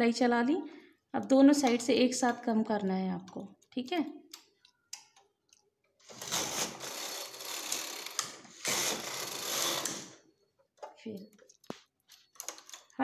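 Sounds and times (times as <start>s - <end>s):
knitting machine carriage running: 6.1s - 10.2s.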